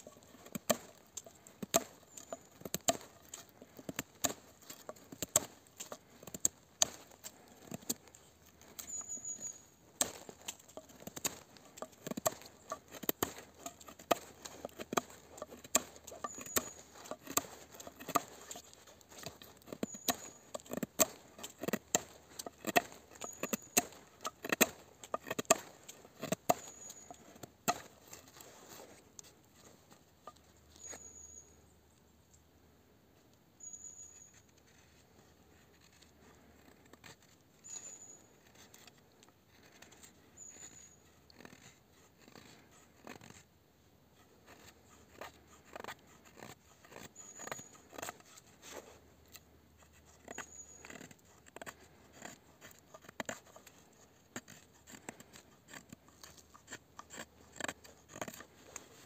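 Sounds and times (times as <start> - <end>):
knife whittling wood: 0.0 - 29.7, 44.2 - 59.0.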